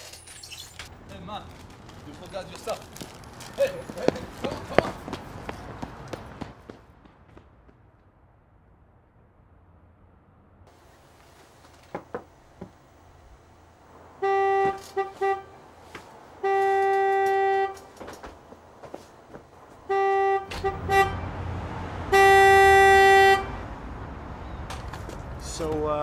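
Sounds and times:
car horn honking: 14.0 - 23.8.

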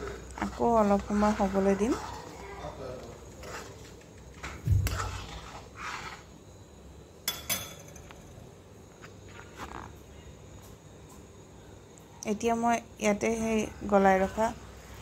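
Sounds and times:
ladle scraping pan: 0.0 - 6.3.

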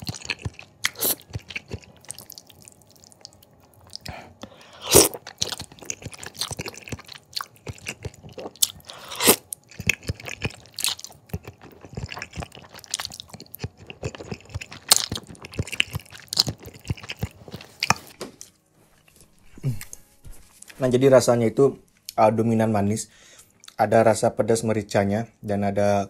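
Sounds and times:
wet chewing and slurping noodles: 0.0 - 20.0.

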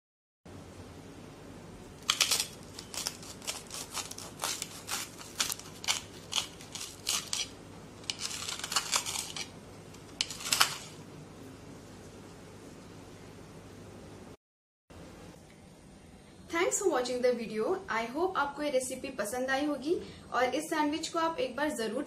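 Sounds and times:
knife sawing through crisp crust: 2.0 - 9.5.

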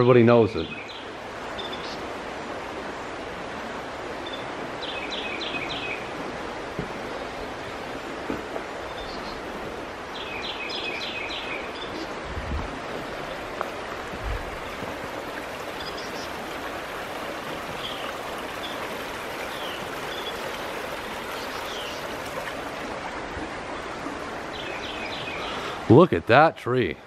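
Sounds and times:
flooded creek rushing: 0.0 - 27.0
bird chirping: 10.2 - 12.1, 15.8 - 16.4, 21.3 - 22.1, 24.5 - 25.7.

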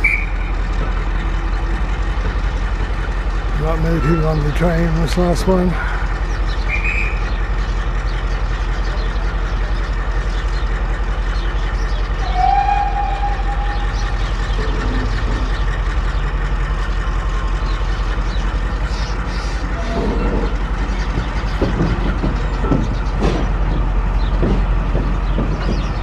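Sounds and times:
train coaches rumbling: 0.0 - 26.0
train squeal: 3.8 - 5.0, 12.0 - 16.4, 19.3 - 21.2.

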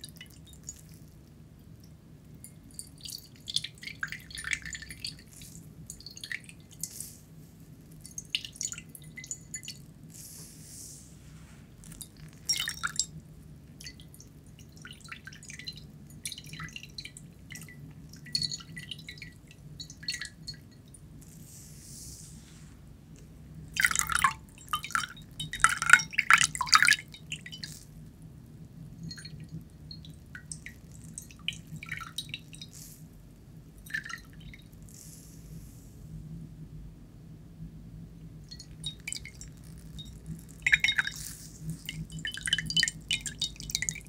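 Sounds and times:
water dripping into a ceramic bowl: 0.0 - 7.0, 7.8 - 10.0, 11.8 - 21.2, 23.5 - 34.9, 38.2 - 44.0.

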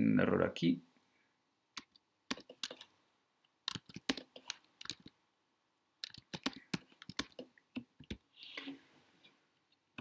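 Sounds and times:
keyboard and mouse clicking: 1.8 - 2.9, 3.6 - 5.2, 6.0 - 8.2.

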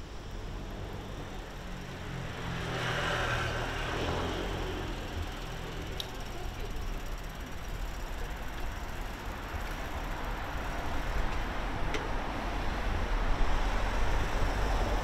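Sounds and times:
car passing by: 2.0 - 5.6.

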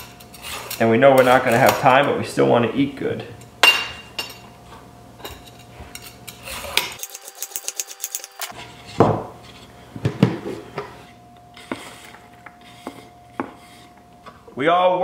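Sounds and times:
peeler scraping a carrot: 0.0 - 1.6.

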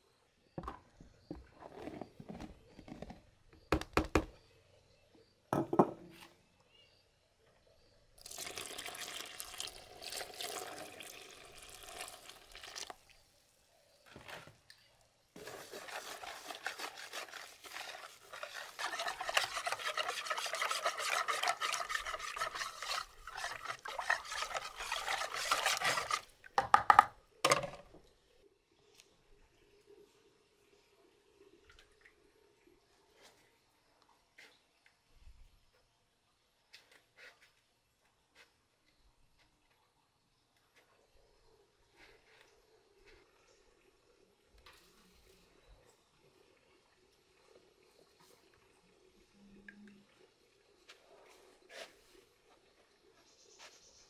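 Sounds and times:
whisk beating batter: 15.4 - 26.3.

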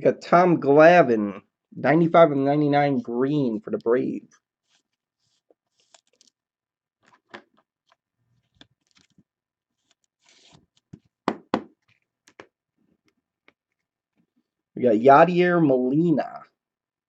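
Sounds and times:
plastic rustle of card sliding: 4.6 - 6.4, 7.1 - 9.2, 9.8 - 11.1.

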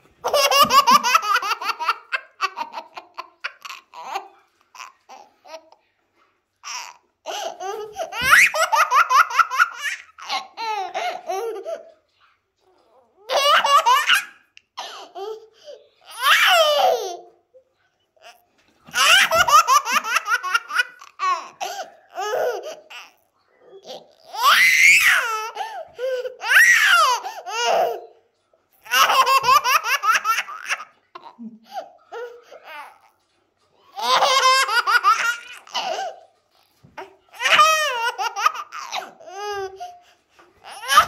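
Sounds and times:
toddler laughing: 0.2 - 5.8, 36.9 - 40.0, 40.6 - 41.0.

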